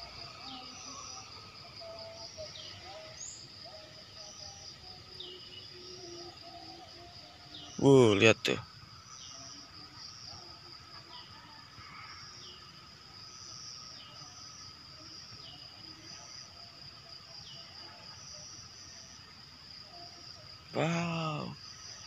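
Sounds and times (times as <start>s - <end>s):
insect high-pitched trill: 0.0s - 22.0s.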